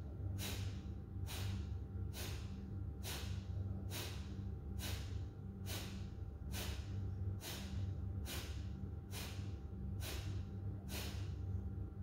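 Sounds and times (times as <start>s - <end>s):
forceful exhalations through nose: 0.4s - 1.6s, 2.2s - 9.4s, 10.0s - 11.3s.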